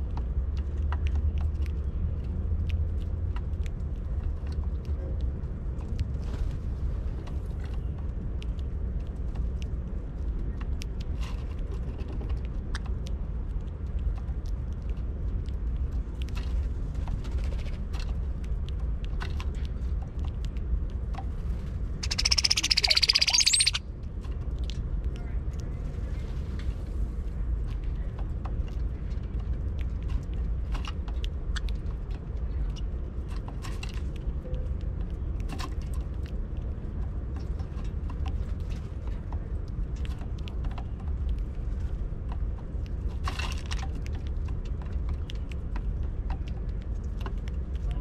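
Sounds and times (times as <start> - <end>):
steady low rumble: 0.0 - 48.0
bird call with rising whistle: 22.0 - 23.8
birds pecking seed clicks: 22.0 - 23.8.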